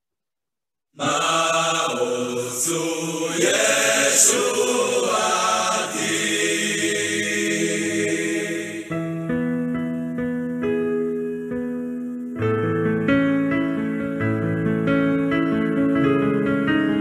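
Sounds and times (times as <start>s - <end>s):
group of voices singing: 1.0s - 9.0s.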